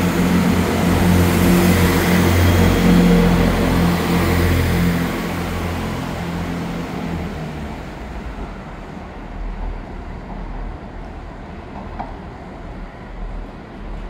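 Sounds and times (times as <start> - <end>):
train engine hum: 0.0 - 14.0
train wheel rumble: 0.0 - 14.0.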